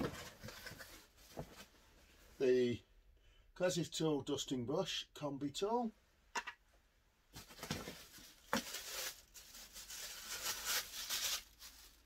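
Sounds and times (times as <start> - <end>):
plastic wrapping crinkling: 7.4 - 12.0.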